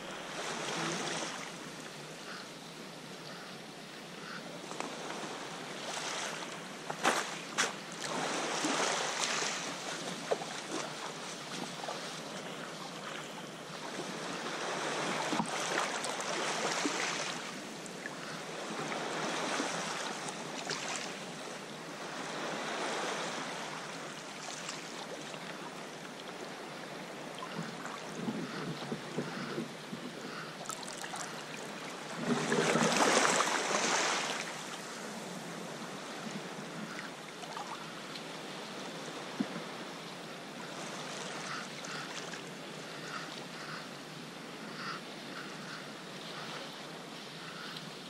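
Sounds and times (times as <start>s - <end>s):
water splashing around kayak: 4.6s - 40.0s.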